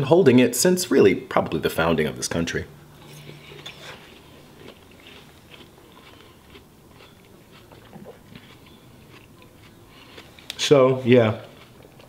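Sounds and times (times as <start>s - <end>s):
chewing with wet crunches: 3.0s - 12.0s.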